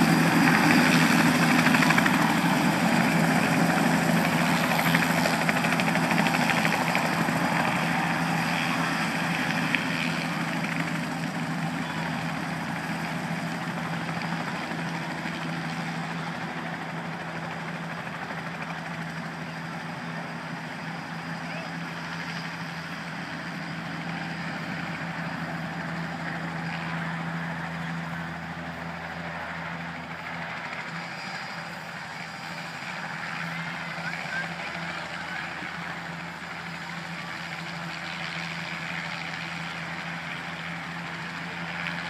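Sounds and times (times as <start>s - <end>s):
helicopter rotor and engine: 0.0s - 42.0s.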